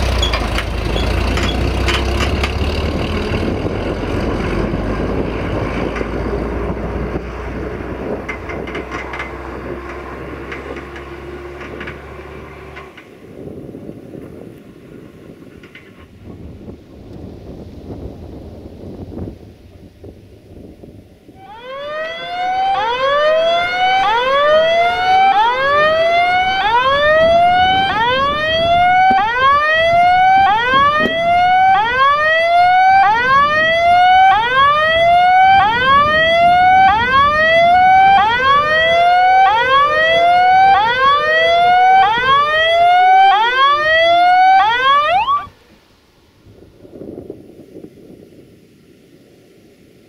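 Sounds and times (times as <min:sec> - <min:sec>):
level crossing warning tone: 0:21.4 - 0:45.6.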